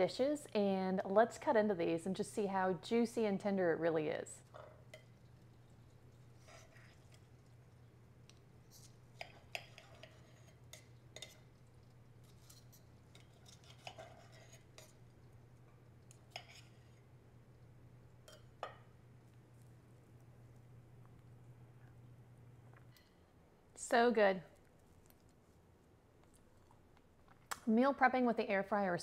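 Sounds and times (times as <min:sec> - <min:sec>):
faint low hum: 0:00.0 - 0:29.0
cutlery clinking and scraping plate: 0:08.8 - 0:11.5, 0:12.3 - 0:15.0, 0:16.1 - 0:16.9.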